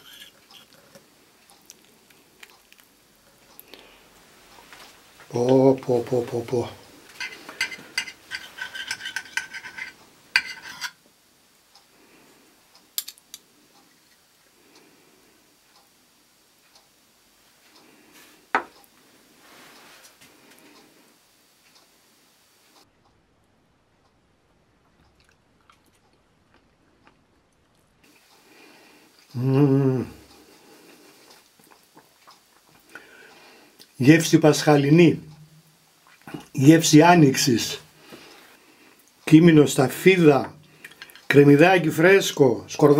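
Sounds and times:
knife and fork scraping a plate: 0.0s - 1.0s, 7.1s - 11.0s
person chewing quietly: 0.0s - 5.4s, 24.7s - 34.0s, 35.9s - 36.6s
hummed mmm: 29.2s - 30.5s.

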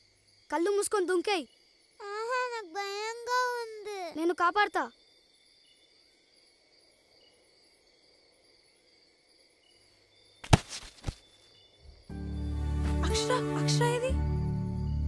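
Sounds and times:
crickets chirring: 0.0s - 12.8s, 14.2s - 15.0s
child landing on ground thud: 10.4s - 11.3s.

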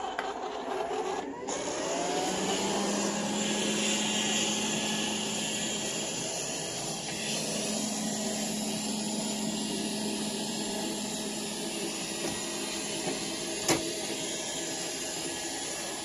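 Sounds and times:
robot vacuum motor whir: 0.0s - 16.0s.

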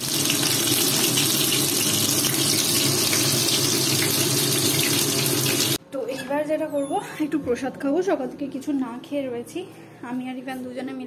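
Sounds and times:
food sizzling in a wok: 0.0s - 5.8s.

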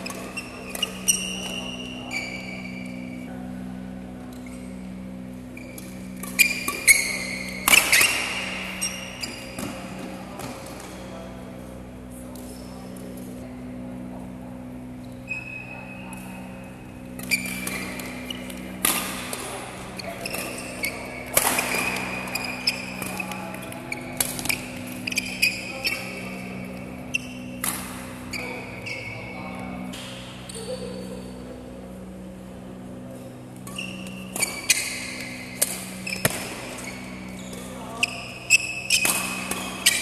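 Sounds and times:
shoes squeaking on court: 0.0s - 3.3s, 4.4s - 11.1s, 17.0s - 31.4s, 33.4s - 40.0s
steady low hum: 0.0s - 40.0s
racket striking shuttlecock: 5.8s - 10.9s, 17.2s - 19.6s, 20.3s - 25.3s, 27.5s - 28.2s, 33.6s - 37.3s, 38.5s - 40.0s.

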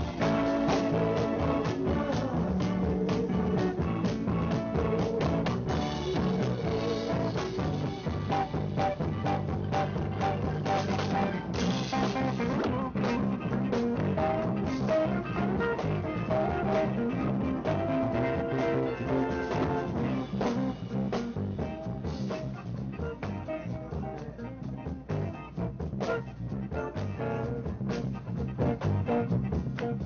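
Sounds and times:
electric guitar: 0.0s - 30.0s
live band playing: 0.0s - 30.0s.

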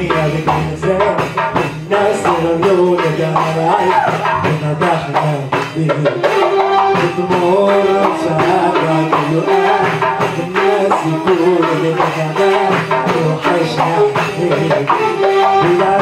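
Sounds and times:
hand drum strokes: 0.0s - 16.0s
electronic keyboard melody: 6.1s - 16.0s.

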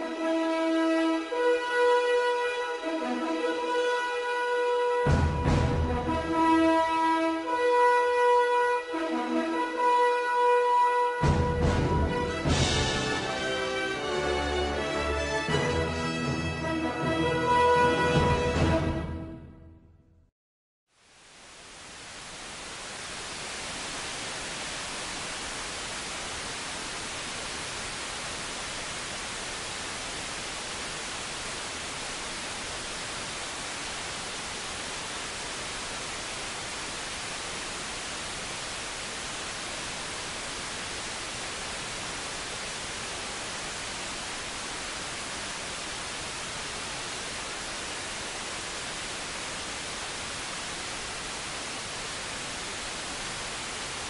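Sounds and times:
radio static hiss: 20.9s - 54.0s.

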